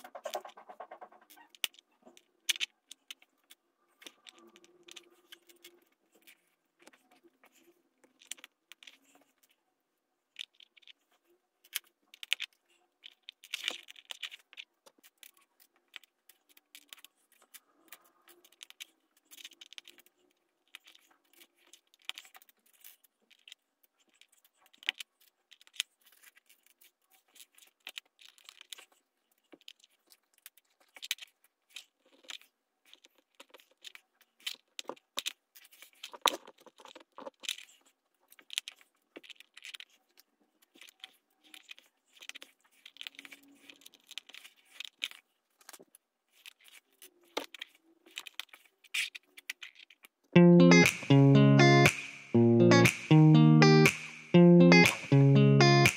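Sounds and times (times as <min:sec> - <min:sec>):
plastic bricks clicking: 0:07.6 - 0:09.5, 0:17.9 - 0:28.8, 0:29.5 - 0:40.0.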